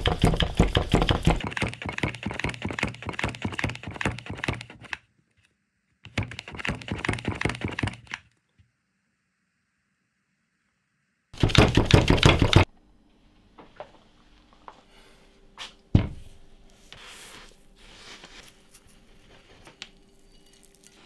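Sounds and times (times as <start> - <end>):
file blade rustling through sand: 16.8 - 21.0.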